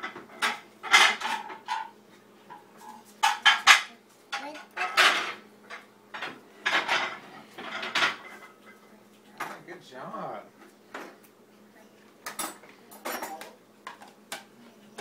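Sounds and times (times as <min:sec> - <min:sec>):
dishes and cutlery clattering: 0:00.0 - 0:01.9, 0:02.5 - 0:08.8, 0:12.2 - 0:14.5.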